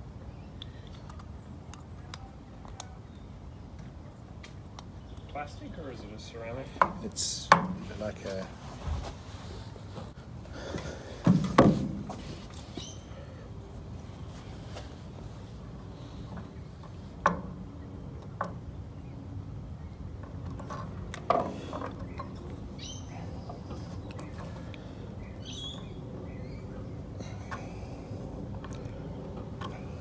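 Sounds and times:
bird chirps: 0:12.7 - 0:13.2, 0:22.0 - 0:23.4, 0:25.2 - 0:27.0.

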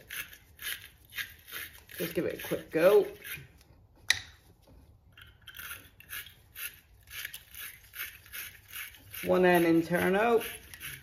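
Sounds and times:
wire brush scraping metal: 0:05.5 - 0:11.0.

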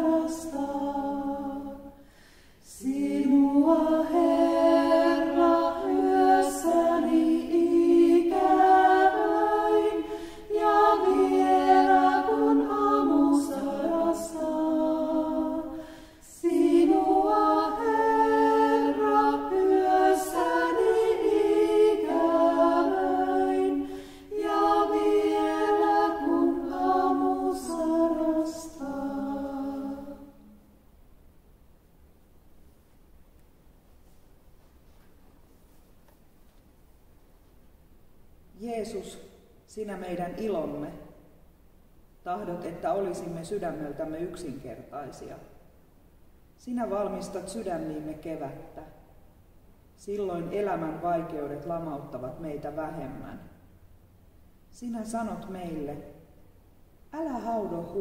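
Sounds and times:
women singing a chant in harmony: 0:00.0 - 0:30.6.

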